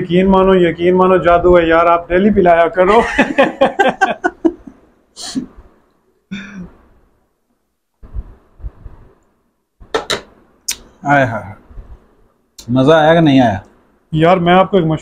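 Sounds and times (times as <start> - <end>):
man laughing: 2.9 - 4.8.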